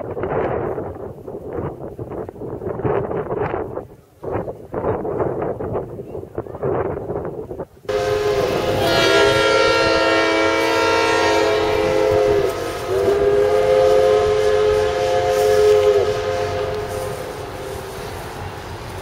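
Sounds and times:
steam locomotive chime whistle: 0:07.9 - 0:18.7.

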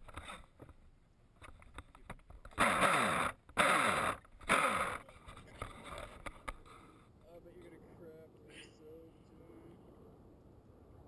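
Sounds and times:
model boat motor bursts churning water: 0:02.5 - 0:05.1.

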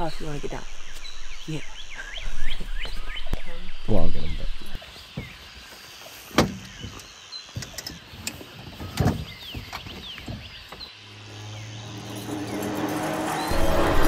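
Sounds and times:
car driving drone from inside: 0:11.0 - 0:14.0.

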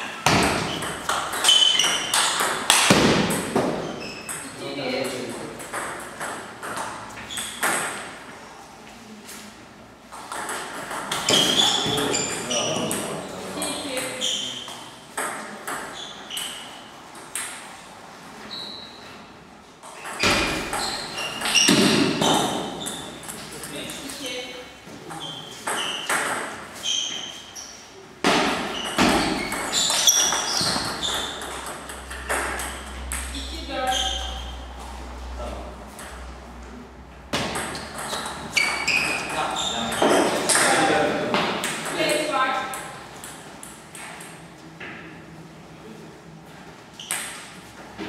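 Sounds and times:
table tennis ball hits: 0:00.0 - 0:08.2, 0:10.1 - 0:13.2, 0:15.1 - 0:16.6, 0:19.8 - 0:24.0, 0:25.6 - 0:26.6, 0:28.2 - 0:33.3, 0:37.3 - 0:44.4
table tennis ball knocking: 0:39.8 - 0:40.8.

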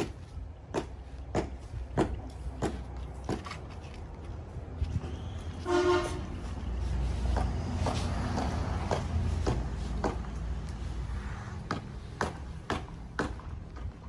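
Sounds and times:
vehicle horn toot: 0:05.6 - 0:06.4.

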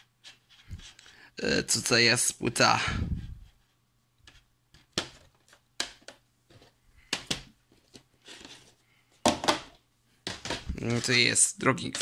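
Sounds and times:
plastic cases clicking and knocking: 0:04.8 - 0:08.1, 0:09.2 - 0:10.7.

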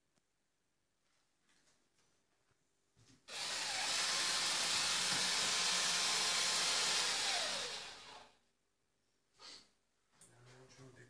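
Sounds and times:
electric drill running: 0:03.3 - 0:08.4.

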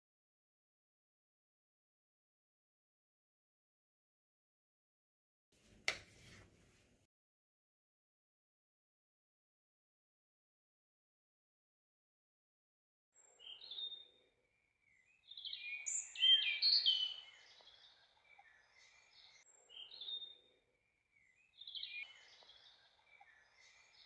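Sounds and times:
songbirds chirping and singing: 0:13.2 - 0:24.0.

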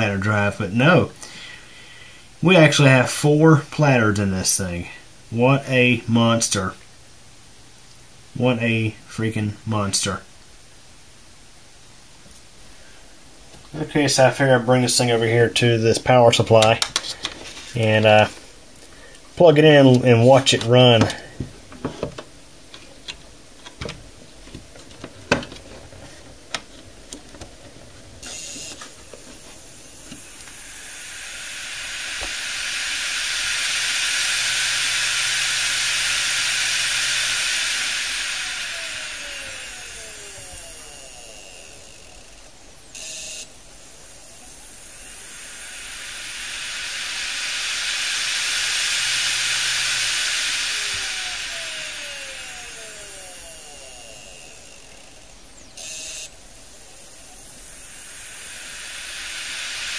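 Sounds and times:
hard drive spinning up and down: 0:19.4 - 0:22.2, 0:24.6 - 0:59.9
short electronic buzz: 0:28.2 - 0:59.9.

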